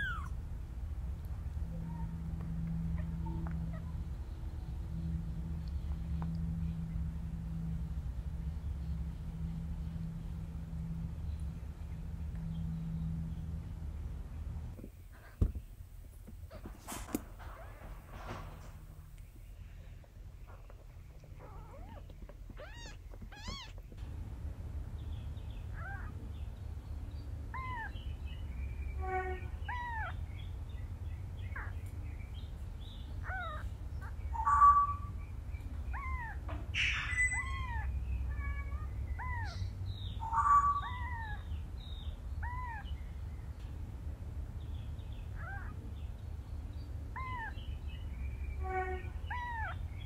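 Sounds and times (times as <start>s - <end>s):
kitten mewing: 0.0s - 0.4s, 21.4s - 23.8s.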